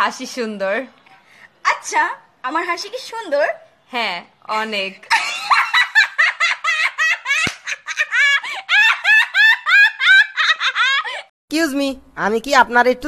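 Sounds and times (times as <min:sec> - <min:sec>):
woman laughing hard: 0:05.1 - 0:11.3.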